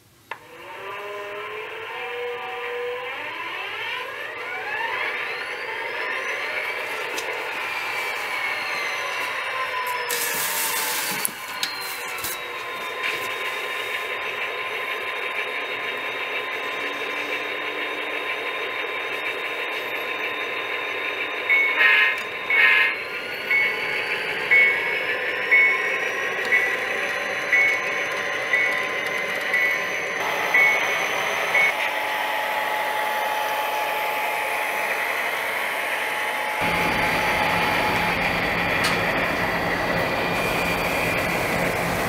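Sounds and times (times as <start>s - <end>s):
diesel engine sound: 0.5s - 42.0s
high whine: 1.5s - 42.0s
bell ringing: 11.3s - 13.0s, 19.8s - 31.8s.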